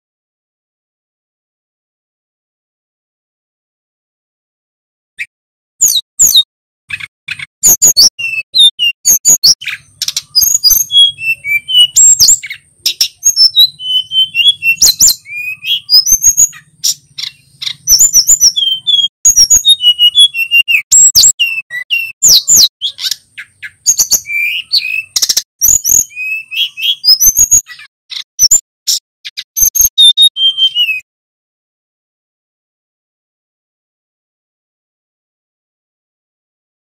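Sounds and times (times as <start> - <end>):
bird singing whistled trills: 5.8 - 31.0.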